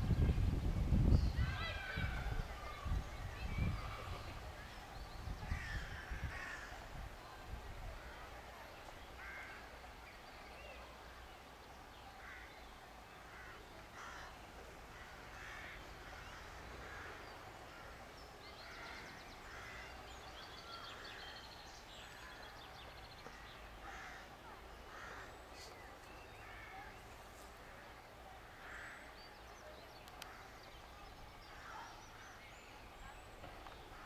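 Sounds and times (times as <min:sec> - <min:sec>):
faint crow caws: 0:05.5 - 0:06.9, 0:09.2 - 0:09.7, 0:12.2 - 0:12.6, 0:13.3 - 0:18.0, 0:18.6 - 0:21.3, 0:23.3 - 0:25.8, 0:27.6 - 0:29.2.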